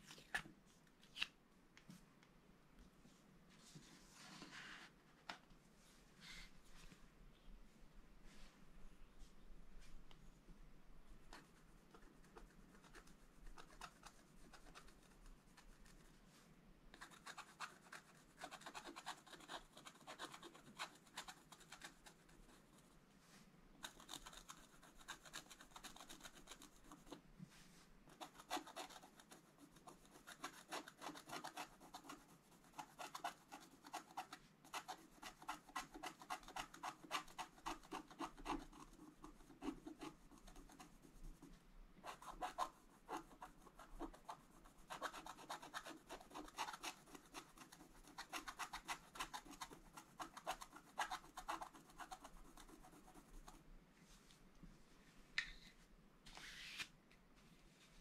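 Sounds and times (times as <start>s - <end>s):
stylus scraping scratch-art sheet: 56.3s - 56.9s.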